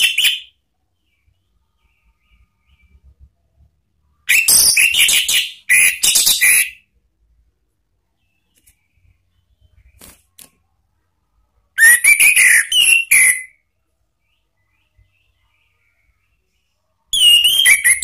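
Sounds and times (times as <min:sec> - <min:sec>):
thrush singing whistled phrases: 0:04.3 - 0:06.8, 0:11.8 - 0:13.6, 0:17.1 - 0:18.0.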